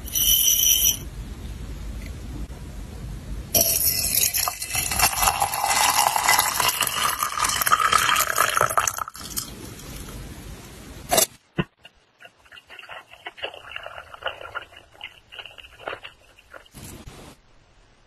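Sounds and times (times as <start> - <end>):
water pouring into glass pitcher: 3.6 - 9.5.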